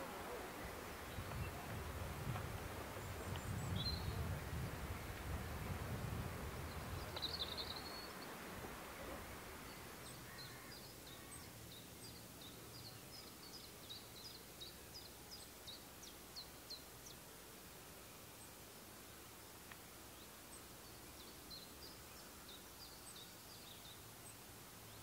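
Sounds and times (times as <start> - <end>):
faint outdoor background noise: 0.0 - 25.0
small songbird chirping: 2.9 - 4.8, 6.5 - 8.4, 9.6 - 17.3, 18.1 - 25.0.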